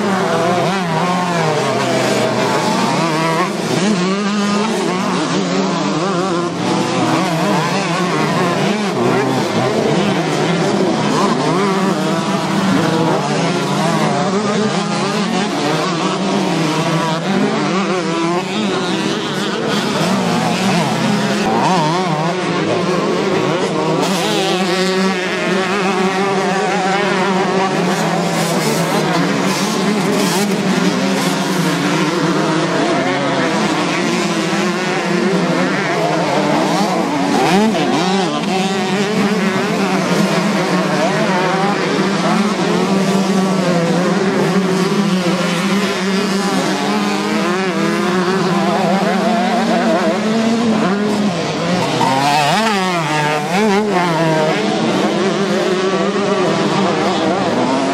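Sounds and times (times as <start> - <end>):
motocross bike engines revving: 0.0 - 57.9.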